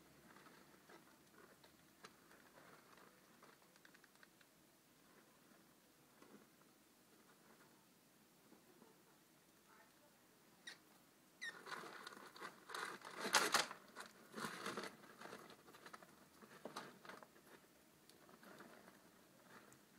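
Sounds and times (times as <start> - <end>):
rats rustling through bedding: 11.4 - 19.9.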